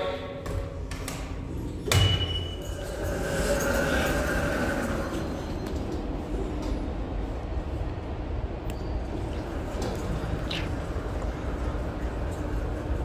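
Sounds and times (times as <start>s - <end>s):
elevator hum: 0.0s - 13.0s
elevator clunk: 1.7s - 3.8s.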